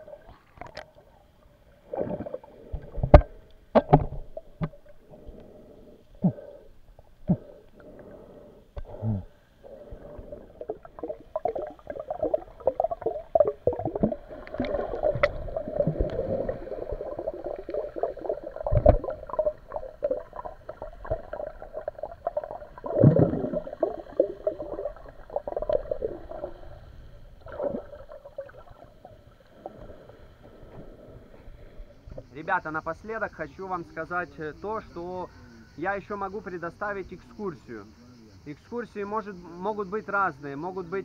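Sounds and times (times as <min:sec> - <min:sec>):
water gurgling and bubbling: 0:00.0 - 0:05.6, 0:09.6 - 0:31.3
thumps: 0:02.8 - 0:04.9.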